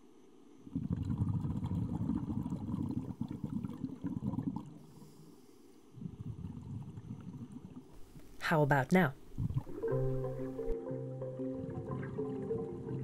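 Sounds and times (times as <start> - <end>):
underwater bubbling rumble: 0.7 - 4.8, 6.0 - 7.9, 9.3 - 10.8.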